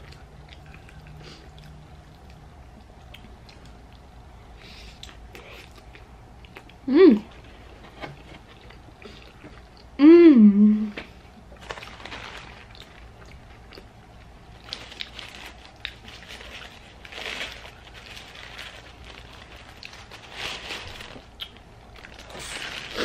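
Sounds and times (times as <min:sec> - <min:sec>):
chewing and mouth clicks: 0:00.0 - 0:04.2, 0:04.9 - 0:06.8, 0:12.7 - 0:13.9, 0:21.4 - 0:22.4
paper wrapper crinkling: 0:11.6 - 0:13.7, 0:14.5 - 0:23.0.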